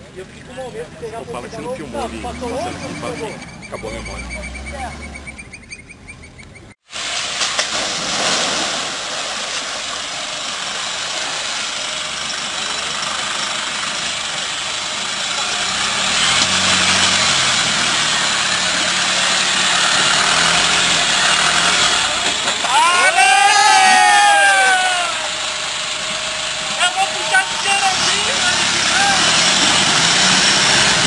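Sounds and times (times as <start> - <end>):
vehicle engine running: 0.0 - 6.8, 9.2 - 31.0
water and mud splashing: 6.9 - 22.4.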